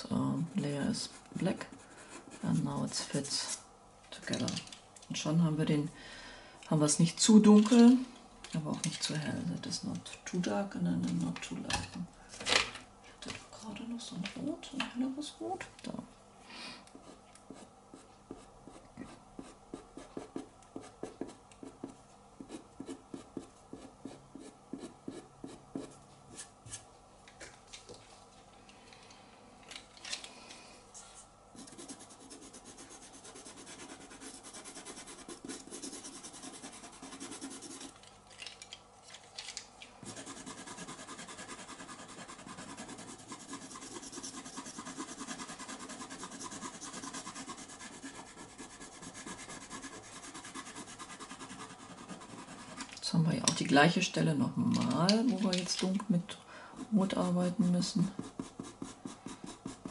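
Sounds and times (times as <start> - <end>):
pastel scratching on paper: 31.6 - 38.0, 40.0 - 52.9, 58.0 - 59.9.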